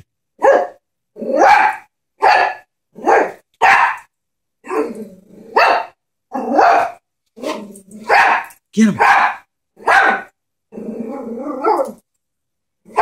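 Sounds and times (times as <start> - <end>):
small dog barking: 0.4 - 4.8, 5.5 - 10.4.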